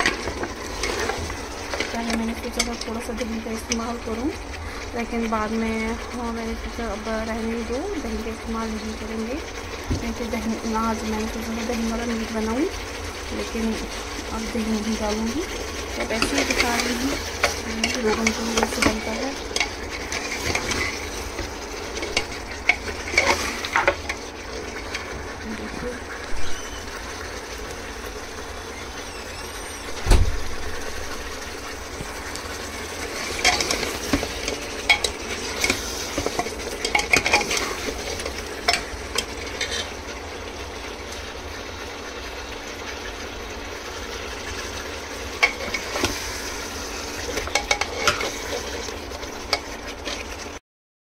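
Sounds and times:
meat sizzling in oil: 0:00.0 - 0:50.6
heavy knock: 0:30.0 - 0:30.6
spoon scraping and clinking pan: 0:33.2 - 0:39.9, 0:47.3 - 0:48.6.

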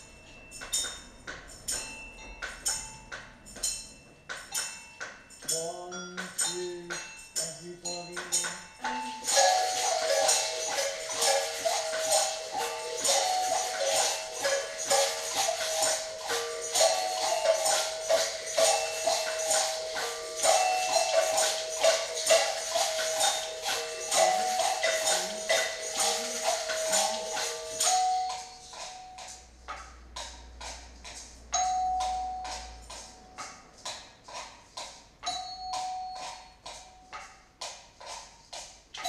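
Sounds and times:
held stepping notes: 0:00.0 - 0:39.0
shakers or tambourines: 0:00.0 - 0:39.0
hand drums playing: 0:08.1 - 0:29.2.

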